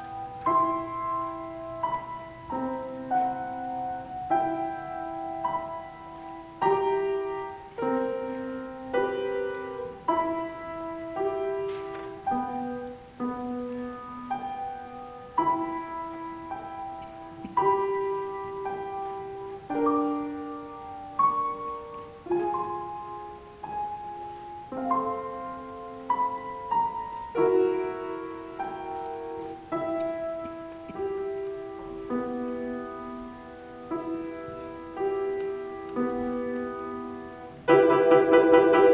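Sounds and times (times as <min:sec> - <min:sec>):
solo piano playing: 0:00.0 - 0:38.9.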